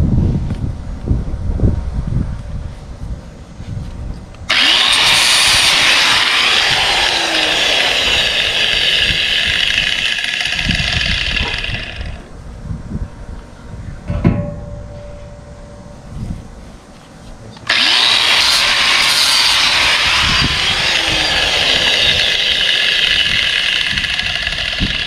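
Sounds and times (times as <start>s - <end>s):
angle grinder grinding steel: 4.5s - 12.3s, 17.7s - 25.0s.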